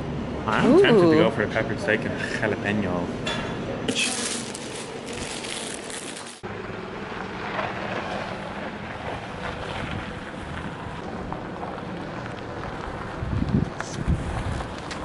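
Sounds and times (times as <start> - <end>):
indoor shop hiss: 3.9 - 6.4
wind blowing on microphone: 13.0 - 15.0.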